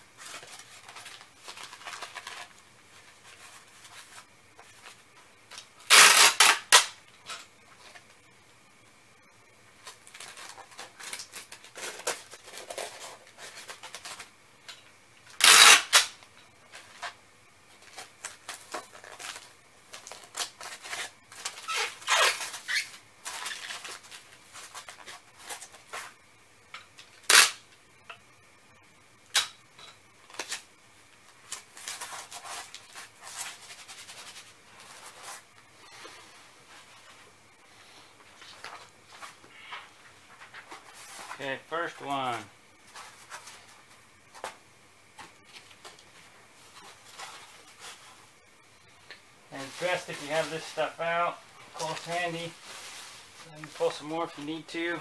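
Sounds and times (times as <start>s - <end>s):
paper and plastic rustling: 0.2s - 6.2s, 9.8s - 14.4s, 17.8s - 26.2s, 31.4s - 44.6s, 45.2s - 48.2s, 49.5s - 55.0s
loud crackles or rips: 5.9s - 6.9s, 15.4s - 16.1s.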